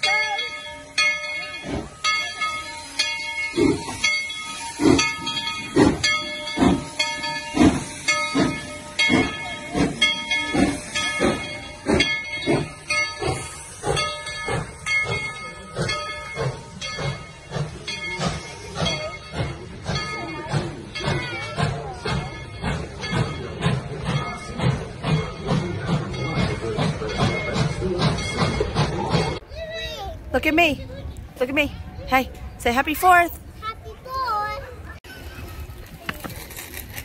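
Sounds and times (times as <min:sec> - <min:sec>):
locomotive bell ringing: 0:00.0 - 0:33.6
steam hissing: 0:01.4 - 0:29.4.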